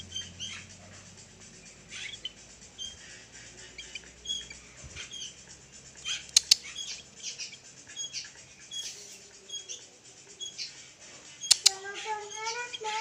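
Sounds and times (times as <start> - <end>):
bird chirping: 0.0 - 13.0
sharp clicks: 6.2 - 6.7, 11.4 - 11.8.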